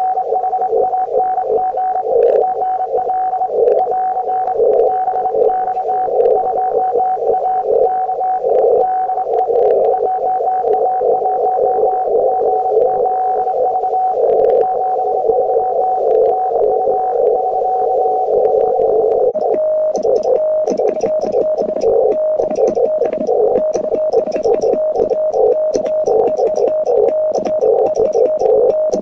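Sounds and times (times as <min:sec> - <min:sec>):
radio band noise with steady tone: 0:00.0 - 0:29.0
morse code beeping: 0:19.3 - 0:29.0.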